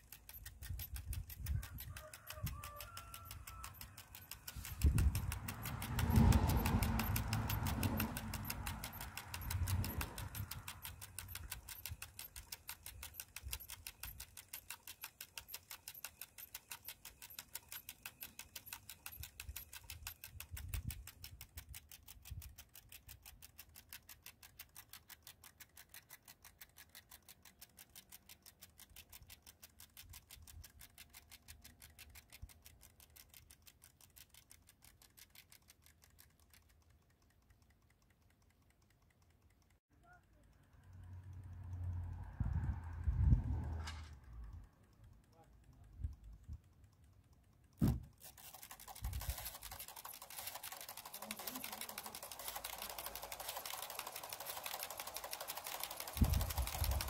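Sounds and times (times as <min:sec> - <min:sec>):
fast mechanical ticking: 0:00.0 - 0:57.0
low motor rumble: 0:40.7 - 0:44.6.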